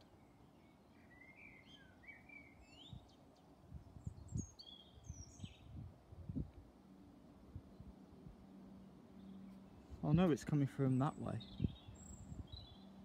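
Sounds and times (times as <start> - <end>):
songbird whistling: 0.3 - 3.2.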